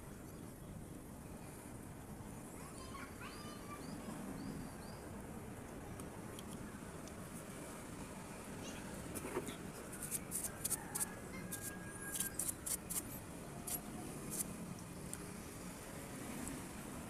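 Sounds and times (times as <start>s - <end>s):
brush bristles scratching: 9.2s - 14.5s.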